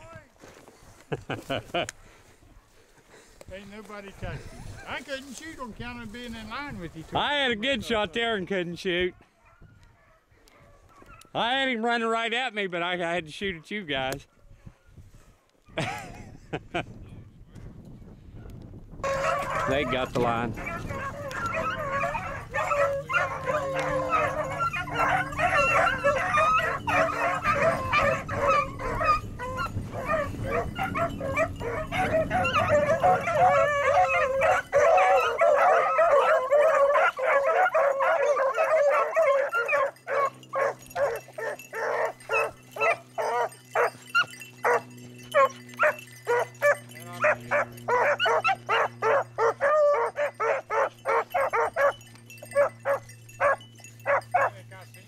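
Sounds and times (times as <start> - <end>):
hounds baying: 7.8 - 11.4, 19.0 - 55.0
dogs barking: 9.1 - 11.4, 18.4 - 55.0.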